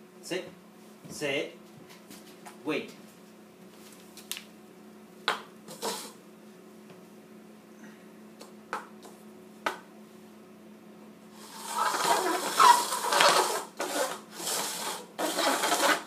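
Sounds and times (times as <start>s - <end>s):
cups scraping across wooden floor: 5.7s - 6.2s, 11.4s - 16.0s.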